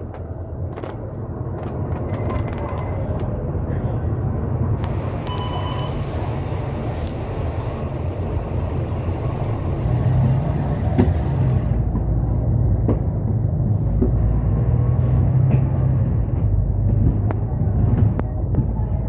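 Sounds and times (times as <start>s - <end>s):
bus engine and road rumble: 0.0s - 19.0s
brief beep: 5.2s - 6.0s.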